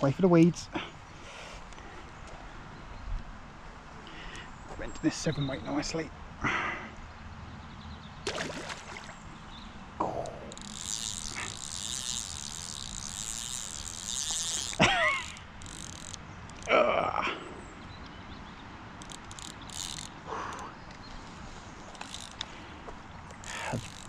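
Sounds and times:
fishing reel drag ratcheting: 10.1s - 16.7s, 19.0s - 20.7s, 21.9s - 22.6s, 23.2s - 24.0s.

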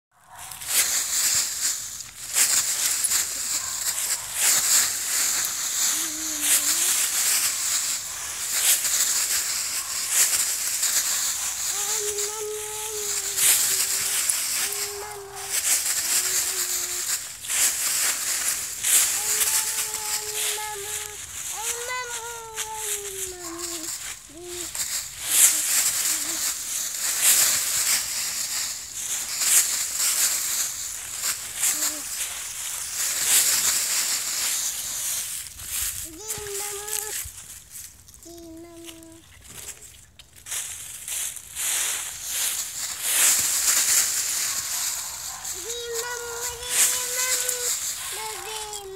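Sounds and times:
dry leaves crunching: 0.2s - 48.9s.

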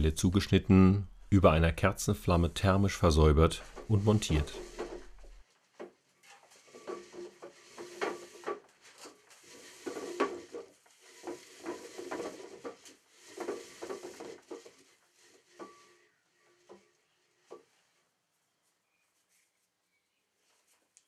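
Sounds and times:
twine spools rattling: 2.1s - 18.0s.

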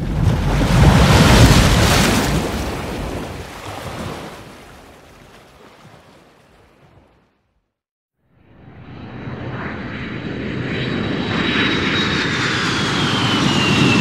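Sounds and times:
surf wave breaking: 0.0s - 7.2s.

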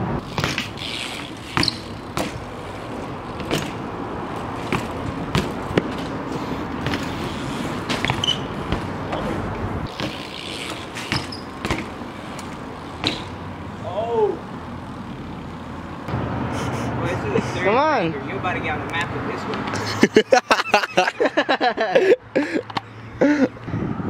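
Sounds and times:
bikes knocking and rattling: 0.0s - 16.0s, 17.4s - 23.6s
street traffic: 0.0s - 24.0s
bikes rolling over concrete: 0.1s - 15.8s.

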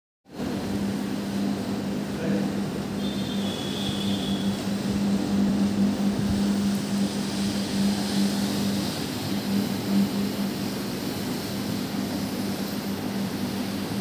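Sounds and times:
floor machine motor humming: 0.3s - 14.0s
brush scrubbing carpet: 4.9s - 14.0s.

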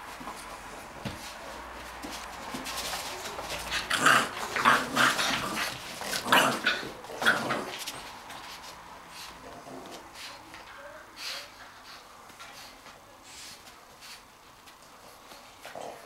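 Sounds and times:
dogs growling in play: 3.0s - 8.4s, 9.2s - 10.2s, 15.0s - 16.0s.

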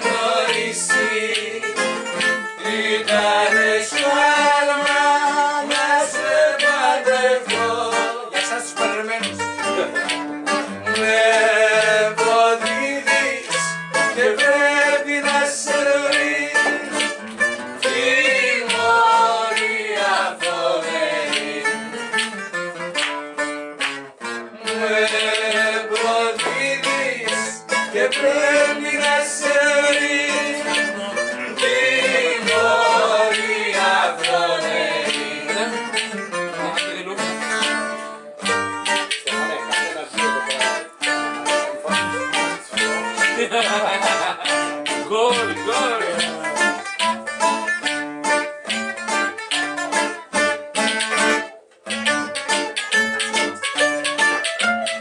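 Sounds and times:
person singing: 0.0s - 9.1s, 10.9s - 17.0s, 24.6s - 36.1s
bouzouki and acoustic guitar: 0.0s - 55.0s.

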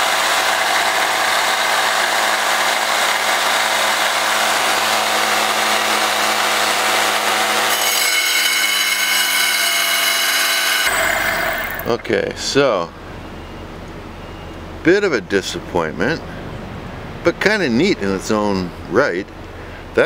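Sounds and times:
tile saw grinding stone: 0.0s - 12.1s
saw motor whine: 0.0s - 12.3s.

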